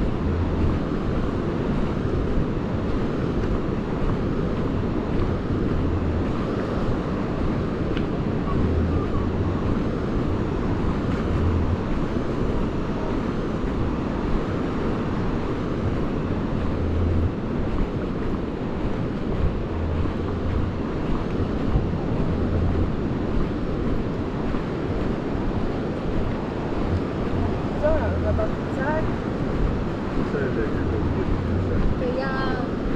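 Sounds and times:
low rumbles: 0.0 - 32.9
sea waves on shore: 0.0 - 32.9
wind buffeting microphone: 0.0 - 32.9.

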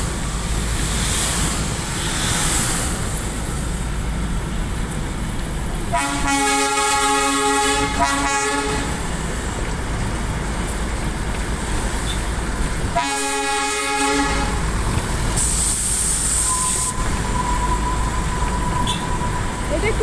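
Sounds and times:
hiss: 0.0 - 5.0, 9.0 - 19.1
train running noise: 0.0 - 20.0
train horn: 5.9 - 9.1, 12.9 - 14.6, 18.8 - 19.1.

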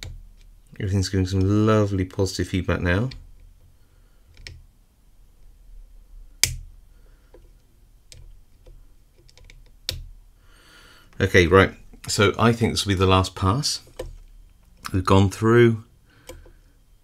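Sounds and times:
sharp lock clicks: 6.4 - 6.7.

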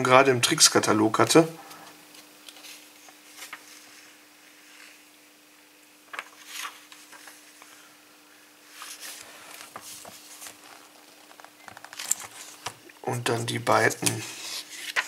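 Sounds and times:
faint steady hum: 0.0 - 15.0
paper catalogue rustling: 8.7 - 15.0.

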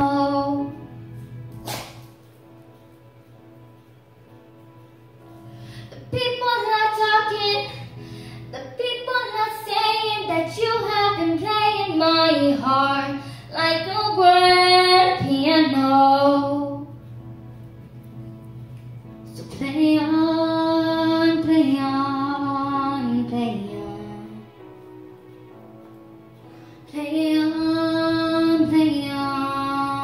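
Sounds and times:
girl singing into microphone: 0.0 - 0.9, 5.8 - 17.0, 19.3 - 24.6, 26.9 - 30.0.

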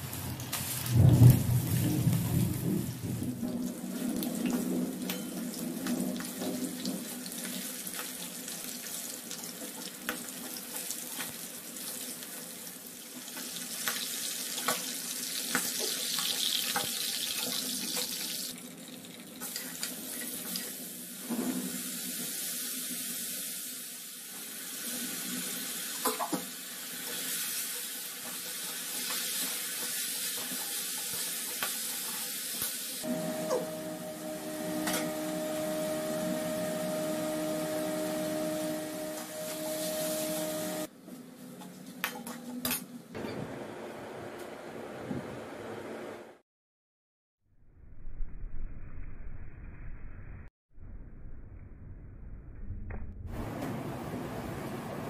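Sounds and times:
chicken sizzling in hot oil: 0.0 - 40.9.

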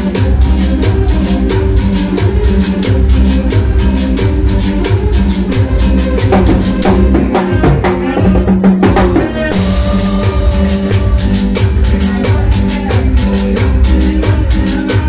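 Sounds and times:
congas and timbales: 0.0 - 15.0
keyboard: 0.0 - 15.0.

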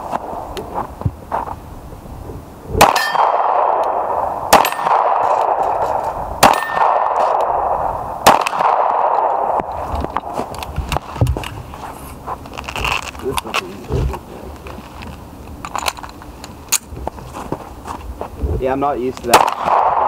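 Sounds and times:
steel targets clanging: 2.8 - 3.4
pistol shots: 2.8 - 9.8, 19.3 - 20.0.

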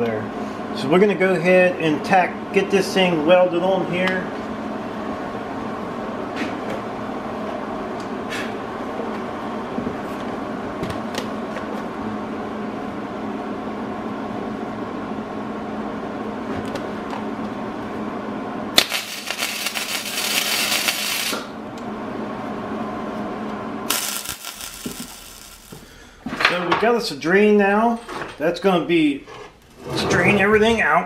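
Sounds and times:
machine hum: 0.0 - 26.4
welding arc crackling: 18.7 - 21.6, 23.8 - 26.0.

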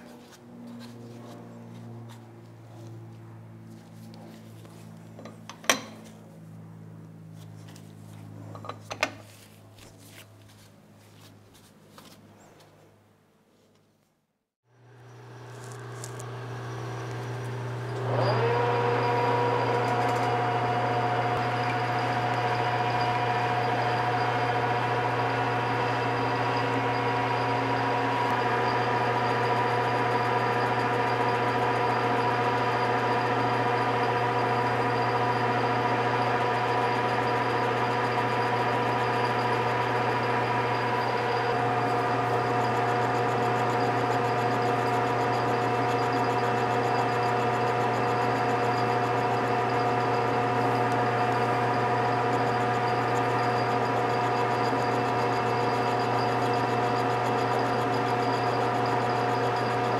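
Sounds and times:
electric shop machine starting up: 14.7 - 59.9.

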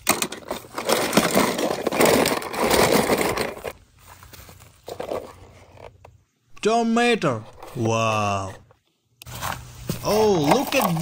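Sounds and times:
toy cars rattling in plastic tub: 0.0 - 3.8, 10.2 - 11.0.

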